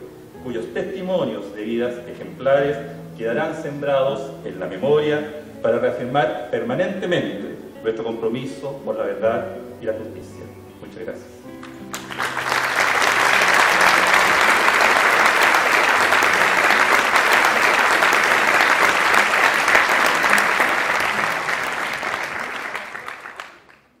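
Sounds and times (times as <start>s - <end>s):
audience applauding: 11.6s - 24.0s.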